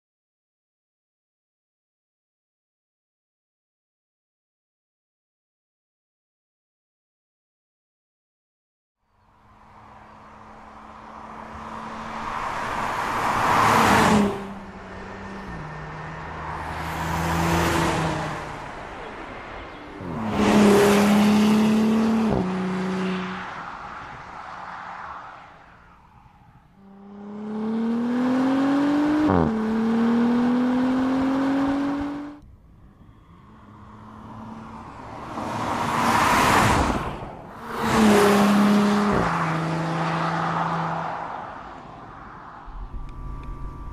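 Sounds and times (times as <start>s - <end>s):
car engine passing by: 9.3s - 32.4s, 33.0s - 43.9s
car engine accelerating hard: 10.1s - 18.8s, 20.0s - 23.4s, 26.8s - 32.4s, 42.7s - 43.9s.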